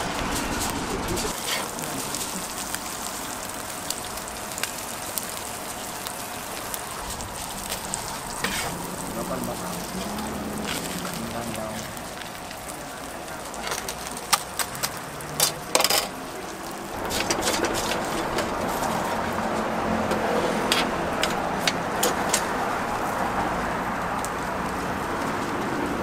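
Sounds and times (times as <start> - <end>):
passing traffic rush: 0.0 - 26.0.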